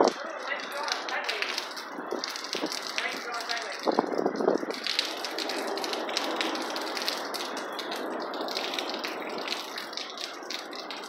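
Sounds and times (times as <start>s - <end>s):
rain rushing: 0.0s - 11.0s.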